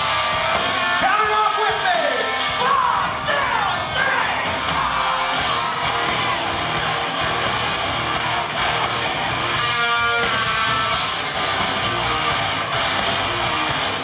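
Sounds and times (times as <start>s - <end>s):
live rock band playing: 0.0s - 14.0s
strummed electric guitar: 0.0s - 14.0s.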